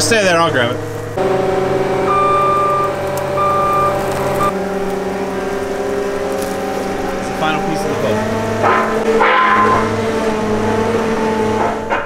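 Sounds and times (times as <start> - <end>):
loader engine running: 0.0 - 12.0
reverse alarm beeping: 2.0 - 4.5.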